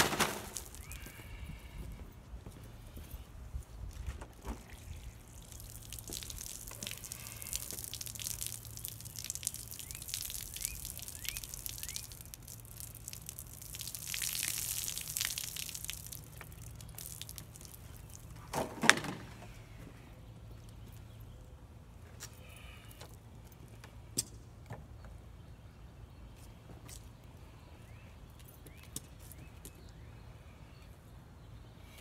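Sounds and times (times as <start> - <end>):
water spilling and dripping: 0.0 - 1.1, 4.3 - 18.5.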